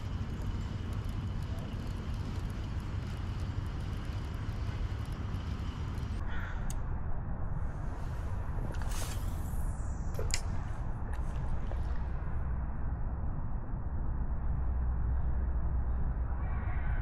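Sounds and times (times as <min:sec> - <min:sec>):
fishing reel ticking: 0:00.0 - 0:06.2
steady low rumble: 0:00.0 - 0:17.0
crow caw: 0:06.2 - 0:06.7.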